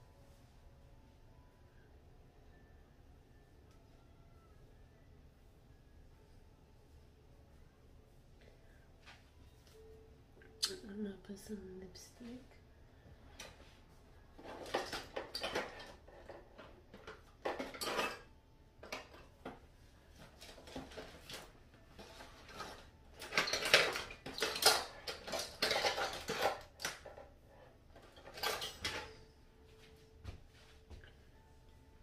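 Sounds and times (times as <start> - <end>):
makeup containers clattering: 14.4 - 19.5, 20.3 - 27.3, 28.0 - 29.2.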